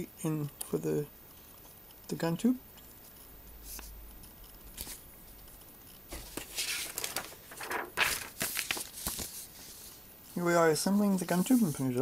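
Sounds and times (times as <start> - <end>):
paper pages rustling: 4.8 - 5.0, 6.1 - 10.0.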